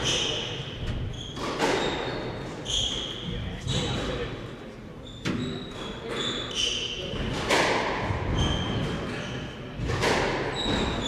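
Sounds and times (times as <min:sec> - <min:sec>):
squash racket and ball hits: 0:00.0 - 0:04.1, 0:05.2 - 0:11.0
shoes squeaking on wooden floor: 0:05.0 - 0:06.9.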